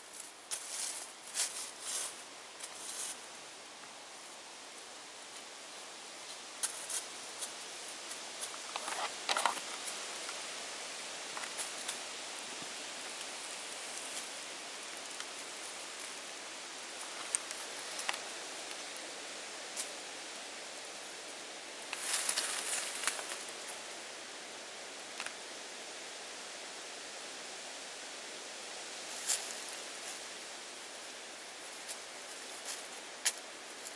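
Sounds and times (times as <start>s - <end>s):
outdoor hiss: 0.0s - 33.9s.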